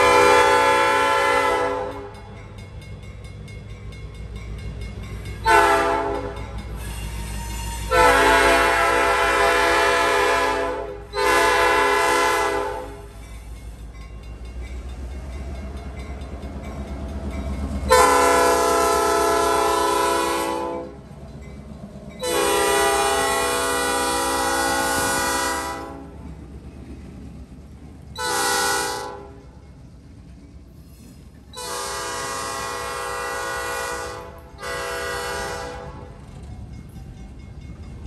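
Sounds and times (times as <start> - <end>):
locomotive air horn: 0.0 - 2.2, 5.4 - 13.1, 17.9 - 21.0, 22.2 - 26.2, 28.2 - 29.6, 31.6 - 36.3
locomotive rumble: 0.0 - 38.0.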